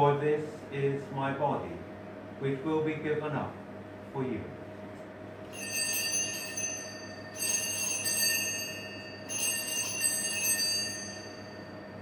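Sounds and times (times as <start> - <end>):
altar bell ringing: 5.5 - 12.0.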